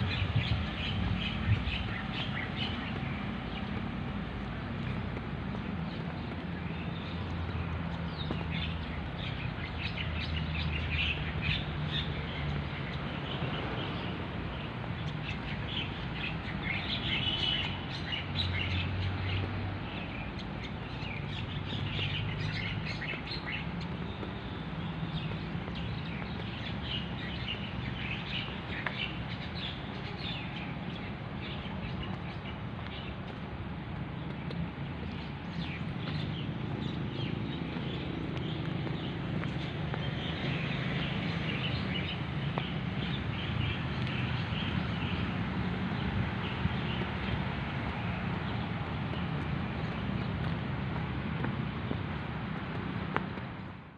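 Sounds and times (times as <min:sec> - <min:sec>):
birds chirping: 0:00.0 - 0:52.8.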